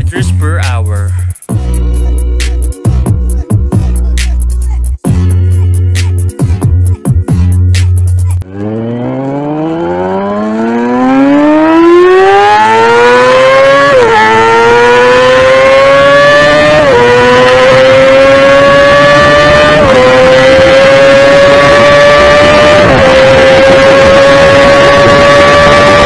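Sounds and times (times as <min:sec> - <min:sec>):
motorcycle engine at full throttle: 0:08.4 - 0:26.0.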